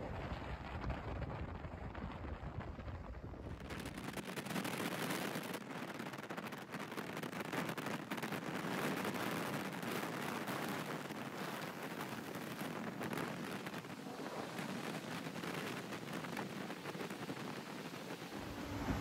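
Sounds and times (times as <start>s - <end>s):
wind rushing over microphone: 0.0s - 19.0s
motorcycle road and engine noise: 13.8s - 19.0s.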